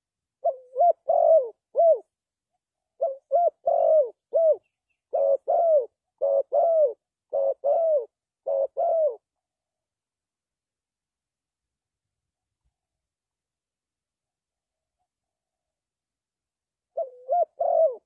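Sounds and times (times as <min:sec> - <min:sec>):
dove cooing: 0:00.4 - 0:02.1, 0:03.0 - 0:09.4, 0:16.9 - 0:18.0.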